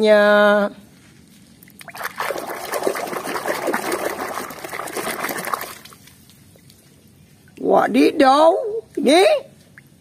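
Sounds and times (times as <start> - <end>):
water sloshing in a tub: 1.6 - 7.6.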